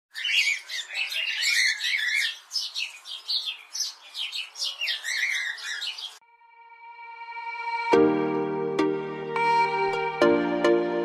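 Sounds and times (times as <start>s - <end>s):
budgerigars chattering: 0.1s - 6.2s.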